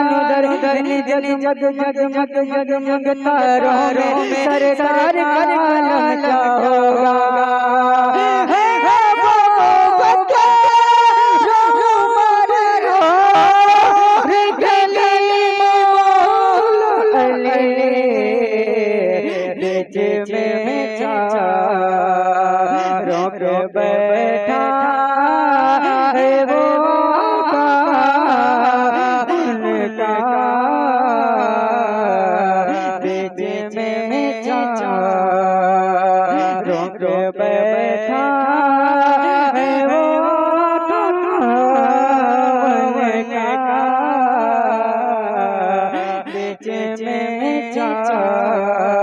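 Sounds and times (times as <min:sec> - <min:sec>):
man singing solo: 0:00.0 - 0:17.2, 0:18.2 - 0:23.8, 0:25.8 - 0:41.1.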